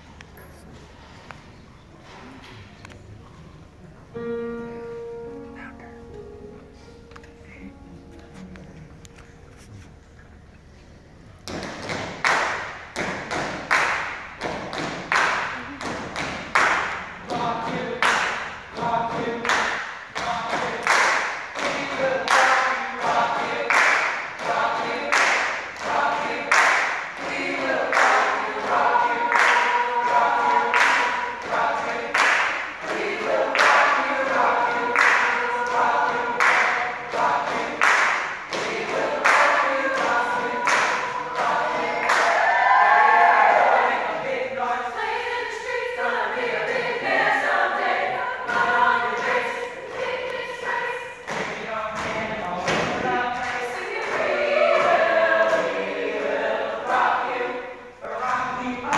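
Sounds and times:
group hand clapping: 11.4s - 42.6s, 46.6s - 57.4s
voices singing together: 16.6s - 58.9s.

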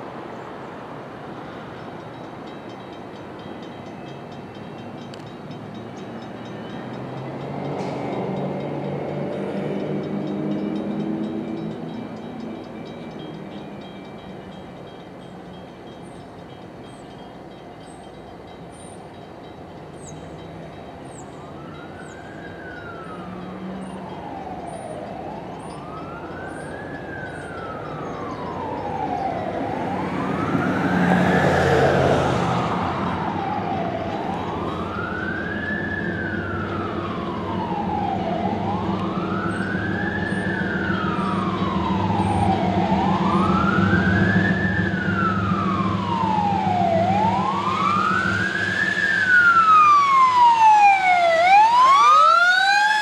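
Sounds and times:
diesel locomotive drone: 0.0s - 53.0s
siren wailing: 21.4s - 53.0s
rush of noise: 42.7s - 50.6s.

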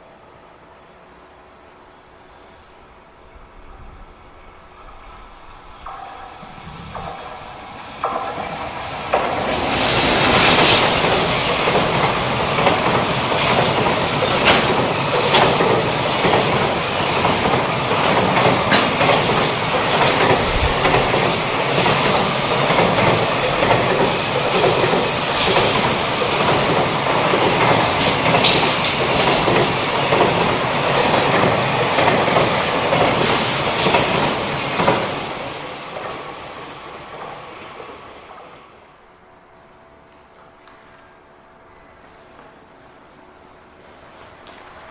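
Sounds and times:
train rumble: 0.0s - 44.9s
wheels clattering over rail joints: 8.0s - 35.1s.

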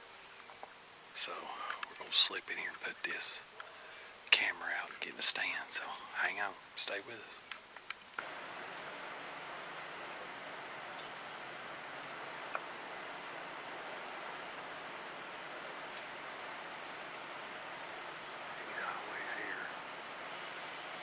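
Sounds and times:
steady background hiss: 0.0s - 21.0s
bird chip calls: 8.0s - 21.0s.

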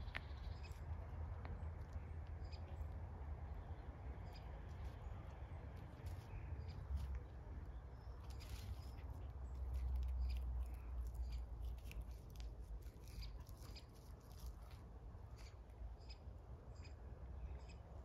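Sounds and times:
clicks and scuffs on gravel: 8.2s - 15.6s.

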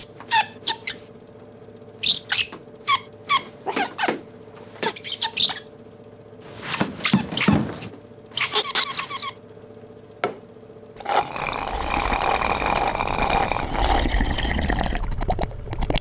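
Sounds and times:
slurping through a straw: 11.0s - 16.0s.

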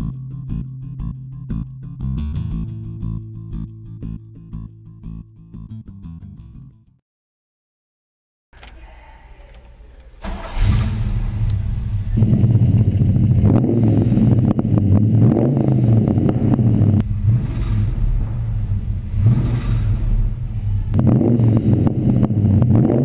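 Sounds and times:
pickup engine starting and revving: 10.2s - 23.0s.

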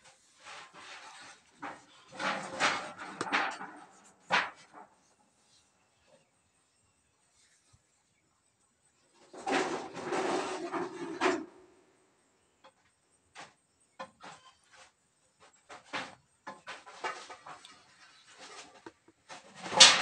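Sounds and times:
loud rasping rustle: 0.0s - 5.0s, 9.2s - 11.4s.

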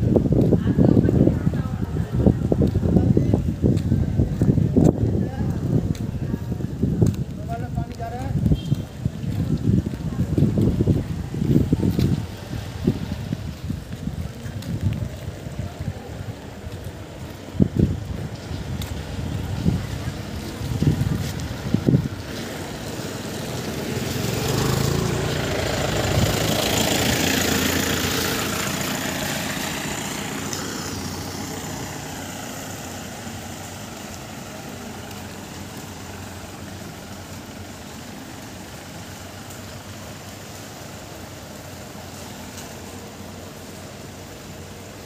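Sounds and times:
tyre hiss on wet road: 0.0s - 45.0s
wet outdoor noise hiss: 0.0s - 45.0s
motor scooter passing: 19.2s - 39.0s.

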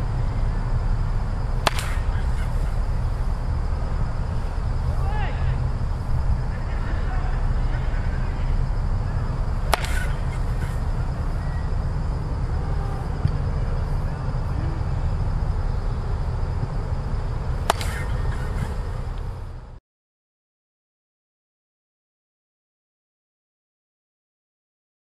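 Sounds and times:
steady low rumble: 0.0s - 19.8s
bat cracking a ball: 1.6s - 3.1s, 9.6s - 11.2s, 17.6s - 18.8s.

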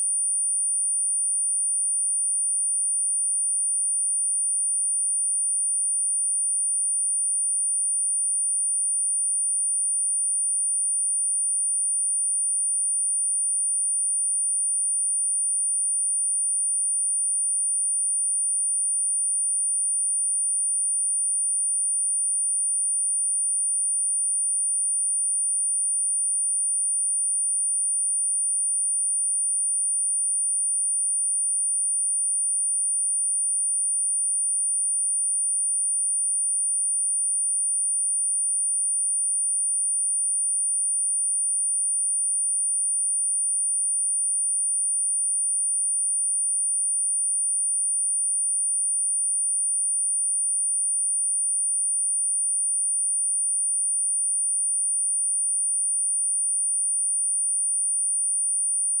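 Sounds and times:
high-pitched sine test tone: 52.4s - 59.0s.

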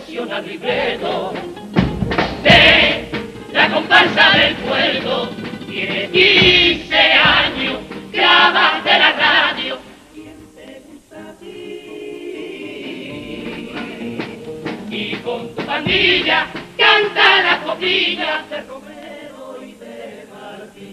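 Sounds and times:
male chorus singing in harmony: 0.0s - 20.9s
guitar accompaniment: 0.4s - 10.6s, 12.5s - 18.7s.

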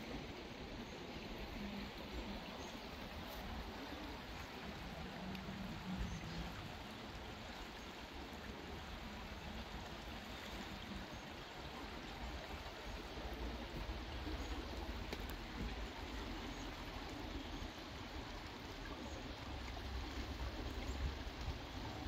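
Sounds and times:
creek water rushing: 0.0s - 22.0s.

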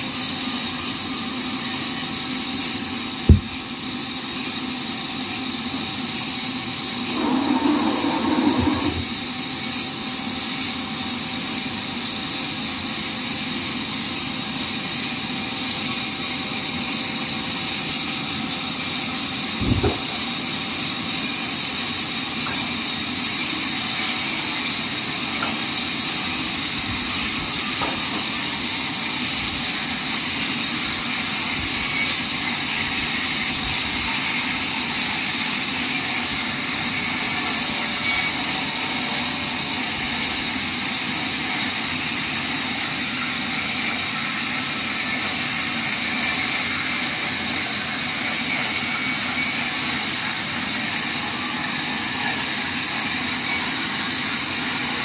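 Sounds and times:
band saw cutting log hiss: 0.1s - 10.6s.

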